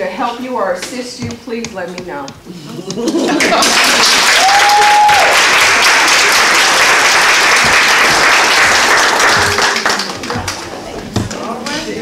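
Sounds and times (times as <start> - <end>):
audience clapping: 2.9 - 10.9.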